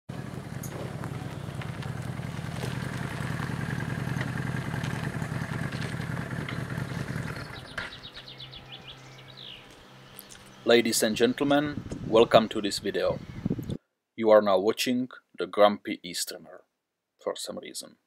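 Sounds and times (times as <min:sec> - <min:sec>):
motorcycle engine running: 0:00.1 - 0:10.6.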